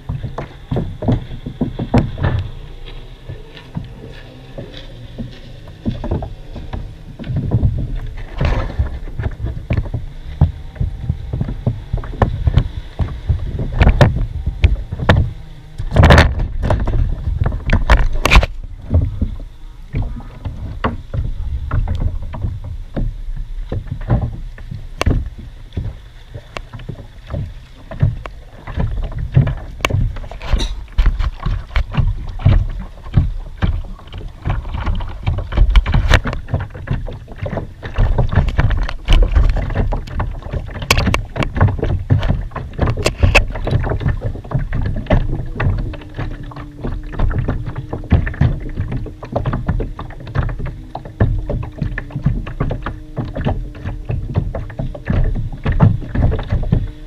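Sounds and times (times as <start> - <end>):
irregular knocks and clicks: 0.0 - 57.0
water slapping against hull: 0.0 - 57.0.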